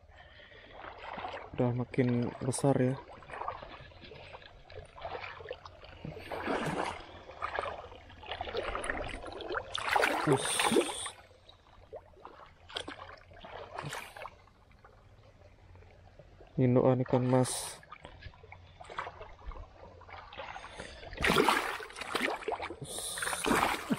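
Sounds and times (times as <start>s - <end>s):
pond water splashing: 0.0s - 23.9s.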